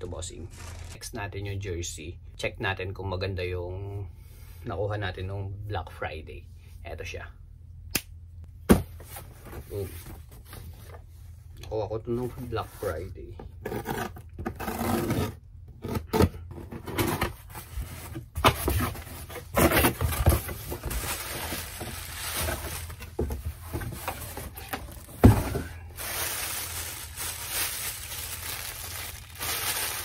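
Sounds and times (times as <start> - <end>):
plastic bag crinkling: 20.8 - 23.2, 24.2 - 30.0.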